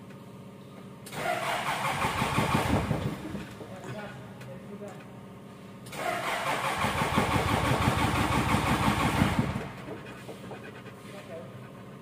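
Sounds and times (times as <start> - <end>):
starter motor cranking diesel engine: 1.0 - 3.7, 5.8 - 10.6.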